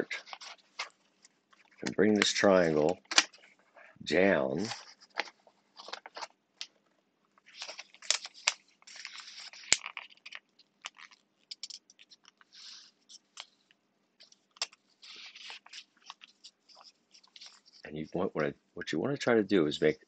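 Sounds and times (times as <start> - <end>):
paper rustling and crinkling: 0.0 - 6.8, 7.4 - 18.0
sharp paper crackles: 4.6 - 6.4, 7.4 - 13.6, 14.2 - 17.9.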